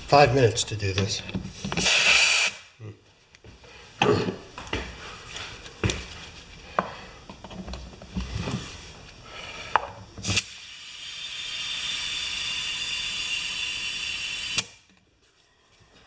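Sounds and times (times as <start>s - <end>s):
compressed air hissing: 1.8s - 2.7s, 8.5s - 14.8s.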